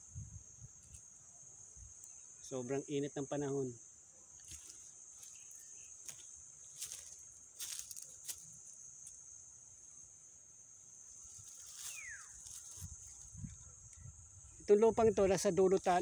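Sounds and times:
insect drone: 0.0s - 16.0s
short falling whistle: 11.9s - 12.4s.

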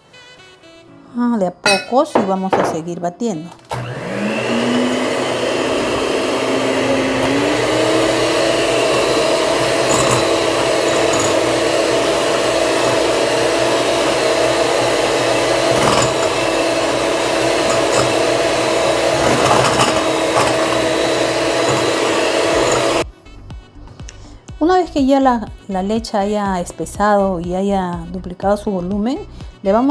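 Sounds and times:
electric hand mixer whine: 3.7s - 23.0s.

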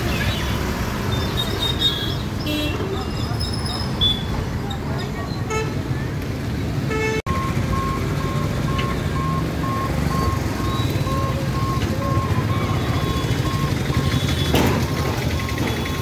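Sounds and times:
motorbikes and vehicles rumbling: 0.0s - 16.0s
level crossing warning beeps: 7.3s - 16.0s.

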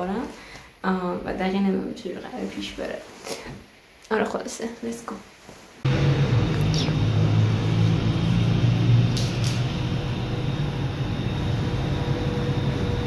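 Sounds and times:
faint constant hum: 0.0s - 7.5s
low rumbling background noise: 5.8s - 13.0s.

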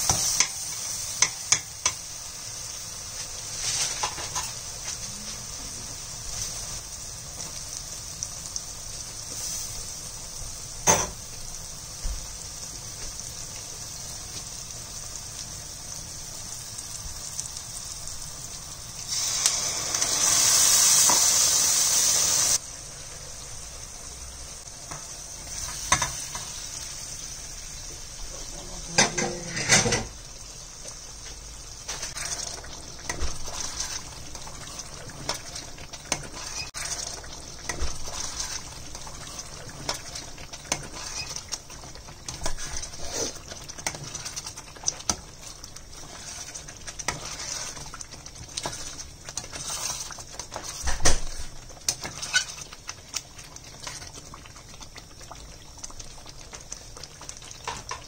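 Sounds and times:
curry simmering and sizzling: 0.0s - 58.0s
spatula scraping a pan: 29.0s - 30.1s, 40.7s - 41.4s, 42.3s - 45.2s, 45.9s - 52.8s.

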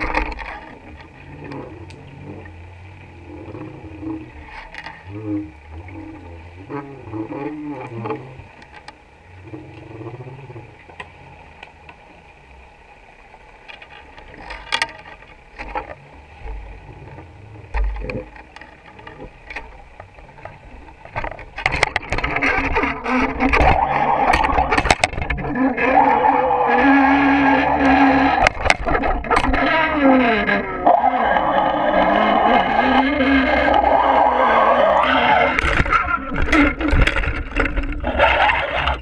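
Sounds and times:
low wavering underwater hum: 0.0s - 39.0s
steady rushing water noise: 0.0s - 39.0s
sharp clicks and knocks: 17.7s - 25.4s, 35.6s - 38.1s.

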